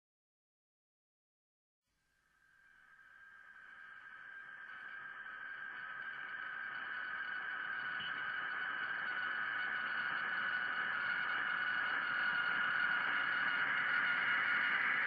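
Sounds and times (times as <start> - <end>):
ambient music drone: 2.5 - 15.0.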